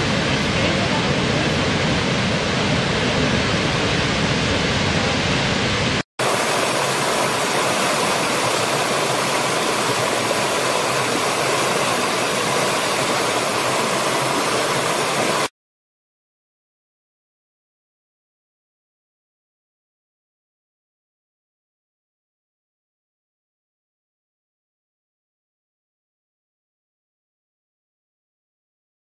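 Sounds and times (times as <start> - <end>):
waterfall rushing: 0.0 - 15.5.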